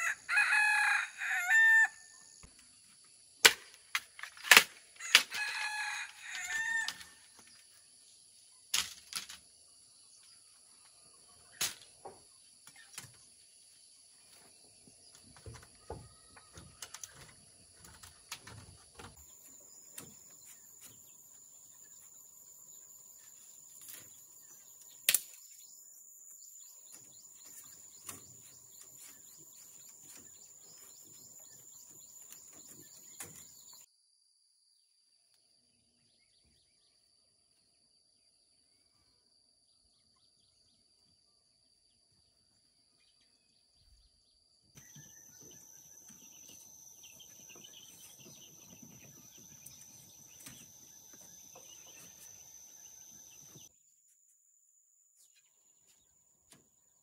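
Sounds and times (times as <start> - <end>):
bird chirps: 19.0 - 33.9, 42.9 - 53.7.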